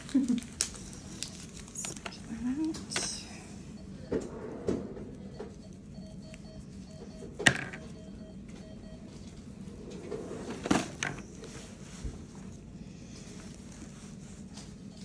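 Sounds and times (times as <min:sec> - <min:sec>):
room noise: 0:00.0 - 0:15.0
handling noises: 0:07.0 - 0:15.0.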